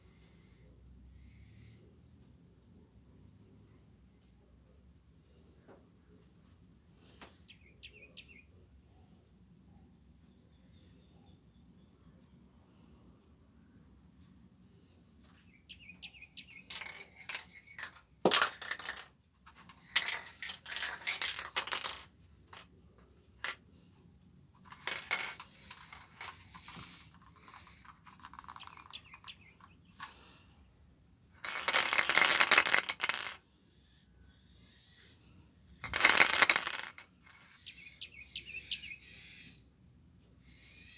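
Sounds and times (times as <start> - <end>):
spray can ball rattling: 16.6 - 22.6, 31.4 - 33.4, 35.8 - 37.0.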